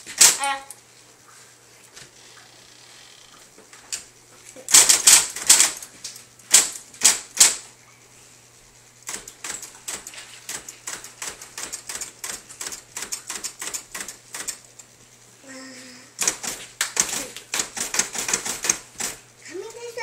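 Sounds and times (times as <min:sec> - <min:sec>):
electric typewriter key strikes: 0:00.0 - 0:00.8, 0:04.7 - 0:05.8, 0:06.5 - 0:07.6, 0:09.0 - 0:14.7, 0:16.2 - 0:19.2.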